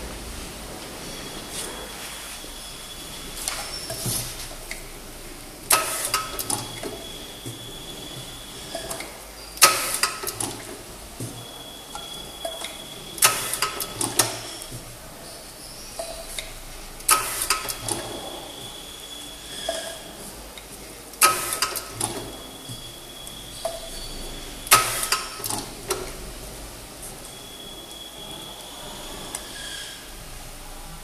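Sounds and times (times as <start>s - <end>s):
faint high whine: 0.0s - 9.6s, 10.6s - 21.0s, 26.1s - 31.0s
machine clack: 5.7s - 10.8s, 12.0s - 14.7s, 16.0s - 18.8s, 21.2s - 22.9s, 23.6s - 26.2s
machine clicking: 20.6s - 22.4s.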